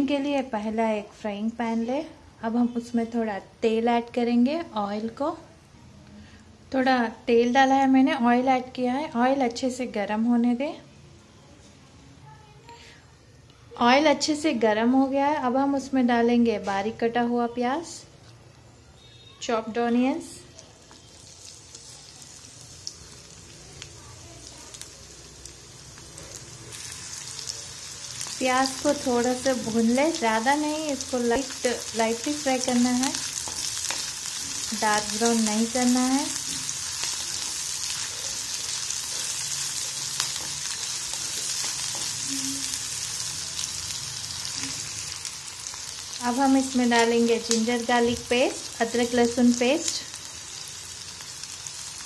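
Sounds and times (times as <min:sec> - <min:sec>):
onions sizzling in oil: 0:20.2 - 0:52.0.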